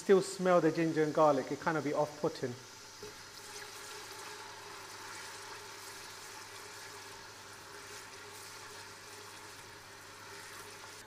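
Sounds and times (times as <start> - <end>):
paste sizzling in hot oil: 0.1 - 11.0.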